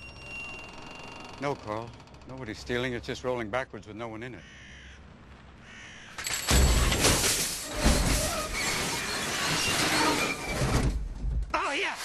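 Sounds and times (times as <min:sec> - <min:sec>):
metal shopping carts clattering: 0:06.2 - 0:10.6.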